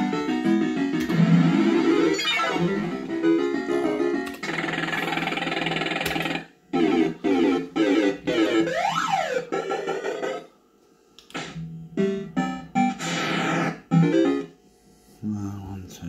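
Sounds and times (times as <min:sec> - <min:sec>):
fruit machine synthesizer tones: 0:01.0 - 0:10.5, 0:11.4 - 0:14.6
rising and falling synth sweep: 0:04.5 - 0:10.5.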